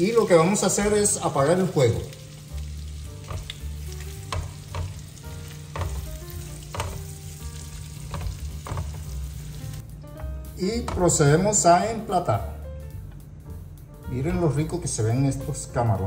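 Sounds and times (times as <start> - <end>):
shrimp sizzling in a frying pan: 0.0 - 9.8
spatula stirring: 2.3 - 9.8.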